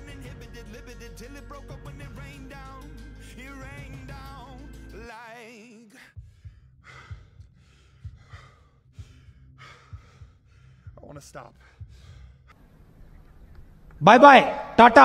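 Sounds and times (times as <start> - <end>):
song with wavering sung notes: 0.0 - 5.2
person breathing hard: 6.0 - 12.6.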